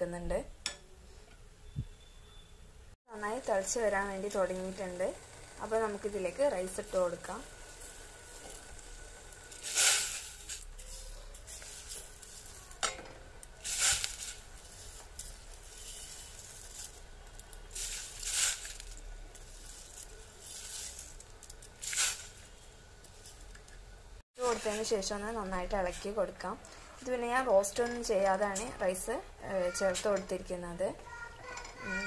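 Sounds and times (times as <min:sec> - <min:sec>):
rice poured into water: 0:09.5 - 0:10.6, 0:15.6 - 0:21.2.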